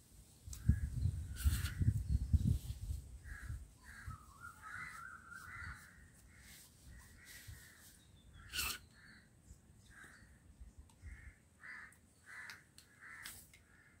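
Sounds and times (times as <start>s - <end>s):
crows cawing: 3.3s - 9.2s, 11.0s - 14.0s.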